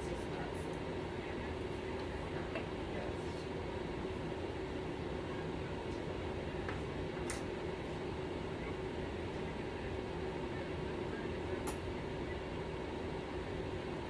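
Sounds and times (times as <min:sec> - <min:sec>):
background hum and hiss: 0:00.0 - 0:14.0.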